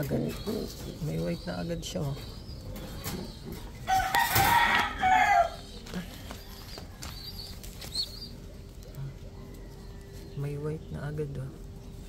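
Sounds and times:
rooster crowing: 3.9s - 5.6s.

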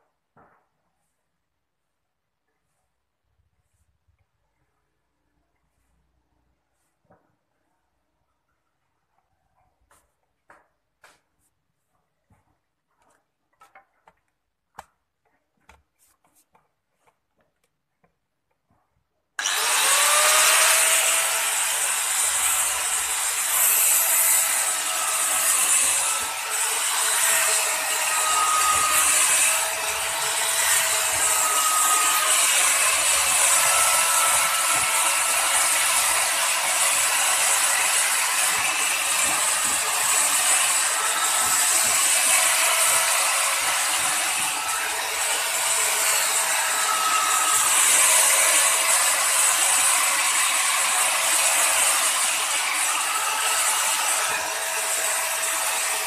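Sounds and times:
angle grinder grinding steel: 19.4s - 56.0s.

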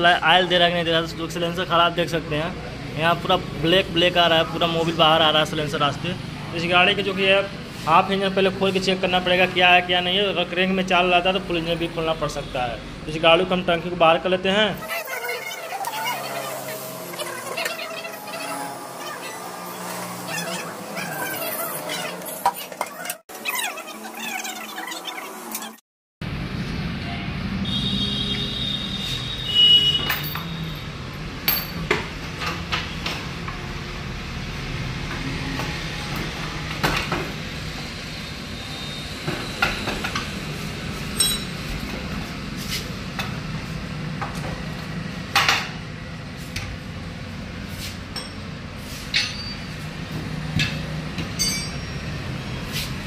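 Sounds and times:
hand tools clinking on metal: 41.2s - 41.6s, 51.3s - 52.0s.

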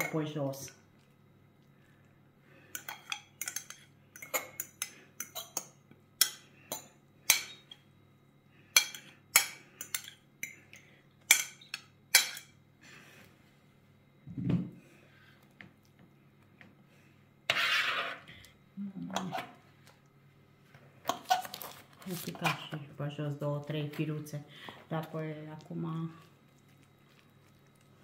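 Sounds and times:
fork scraping metal bowl: 17.5s - 18.3s.

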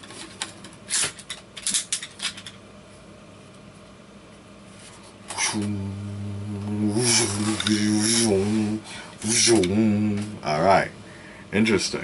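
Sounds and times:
low electronic hum: 0.0s - 12.0s
plastic toy clicks and rattles: 0.1s - 2.6s.

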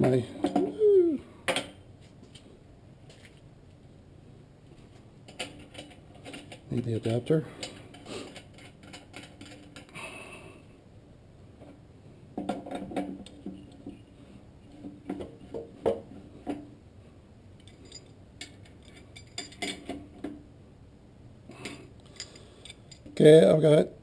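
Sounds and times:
metal parts clinking and knocking: 5.3s - 9.9s, 17.6s - 20.2s, 21.6s - 23.2s.

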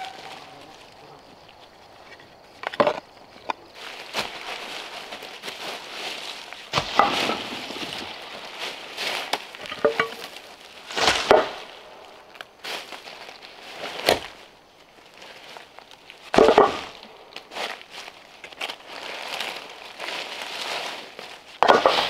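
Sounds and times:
dry leaves rustling: 0.0s - 22.0s.

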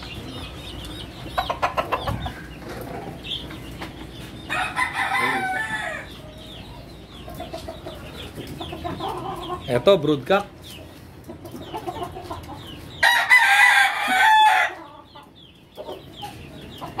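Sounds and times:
rooster crowing: 4.5s - 6.1s, 13.0s - 14.8s.

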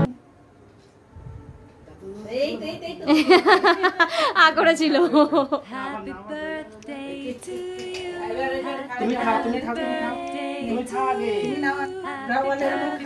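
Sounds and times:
voices singing unaccompanied: 5.2s - 13.0s.

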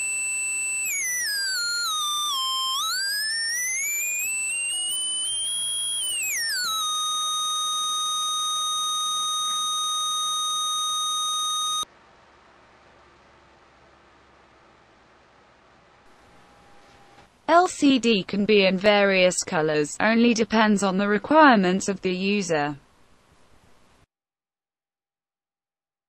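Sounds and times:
electronic test tone gliding: 0.0s - 11.9s, 16.1s - 17.2s.

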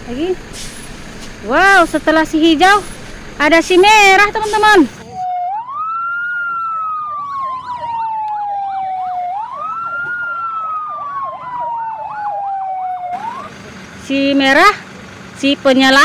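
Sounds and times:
fire engine siren wailing: 4.2s - 15.2s
siren yelping warble: 5.1s - 13.5s.

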